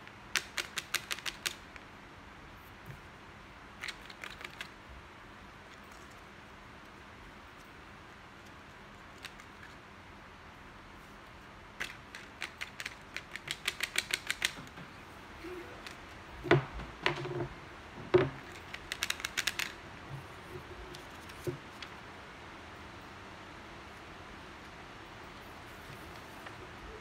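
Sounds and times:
paper clicking on wooden table: 0:11.8 - 0:14.8.

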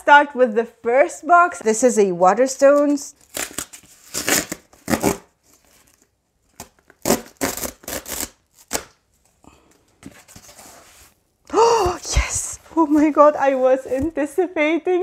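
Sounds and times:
cardboard tearing and rustling: 0:03.2 - 0:09.0.

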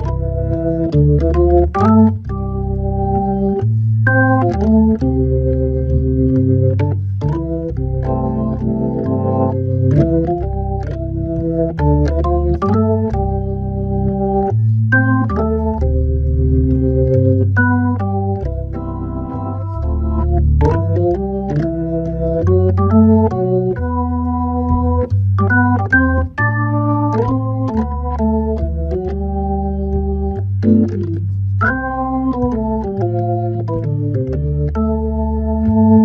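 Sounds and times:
organ chord clicks: 0:00.0 - 0:36.0
organ playing jazz waltz: 0:00.0 - 0:36.0.

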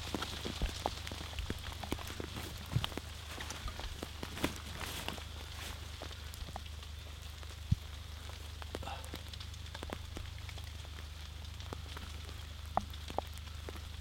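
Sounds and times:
wet crackles and clicks: 0:00.0 - 0:14.0.

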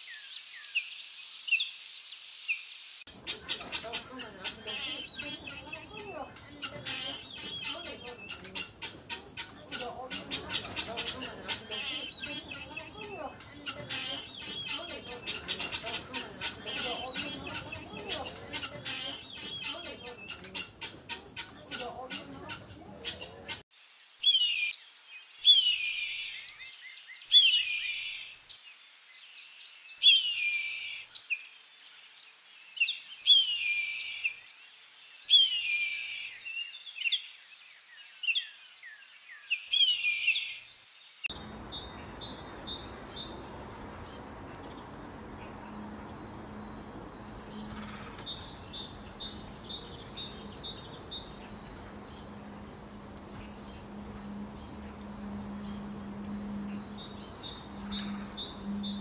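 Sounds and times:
low steady hum: 0:41.3 - 0:59.0
small finches chirping: 0:41.3 - 0:59.0.

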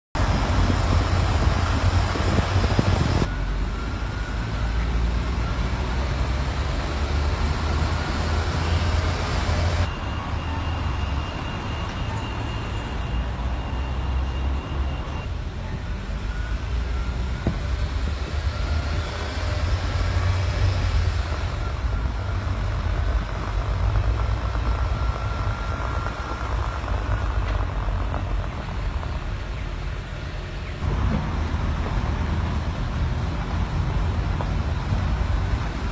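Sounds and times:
road and traffic noise: 0:00.1 - 0:35.9
faint steady high tone: 0:09.8 - 0:17.4.

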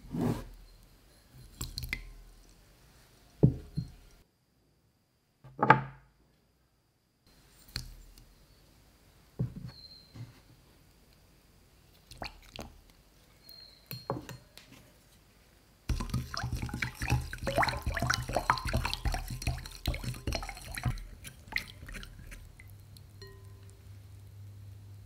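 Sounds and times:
water splashing and sloshing: 0:12.1 - 0:12.9, 0:15.9 - 0:23.7.

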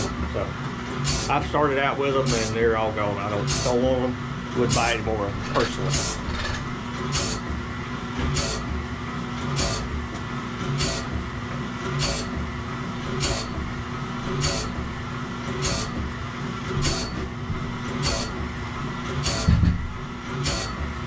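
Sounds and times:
grinding wheel hissing: 0:00.0 - 0:07.5, 0:08.3 - 0:08.7, 0:09.5 - 0:10.0, 0:10.7 - 0:11.2, 0:11.9 - 0:12.4, 0:13.1 - 0:16.0, 0:16.7 - 0:18.5, 0:19.1 - 0:19.6, 0:20.3 - 0:21.0
motor hum: 0:00.0 - 0:21.0.

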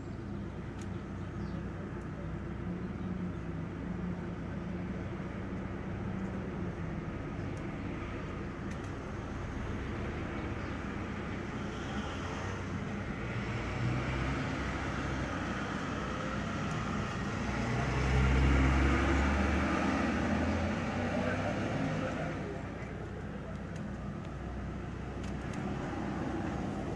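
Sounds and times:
fire engine driving past: 0:08.0 - 0:26.9.

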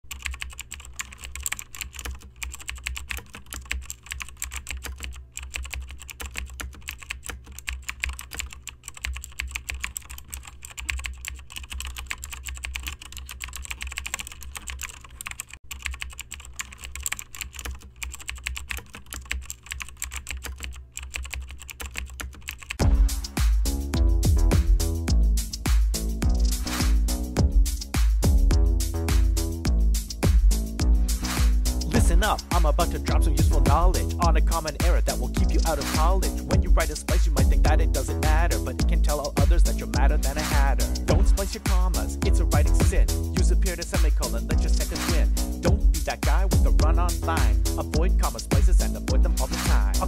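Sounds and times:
keyboard typing: 0:00.0 - 0:29.4, 0:30.1 - 0:50.0
steady low hum: 0:22.8 - 0:50.0.

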